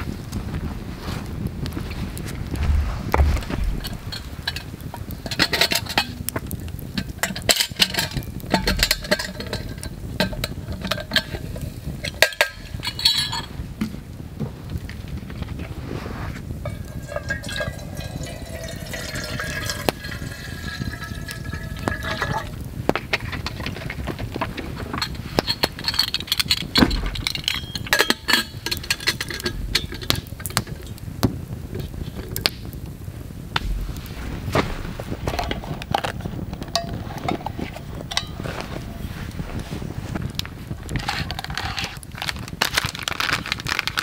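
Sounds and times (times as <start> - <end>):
small crackles: 0.0 - 44.0
water pouring into kettle: 16.7 - 22.6.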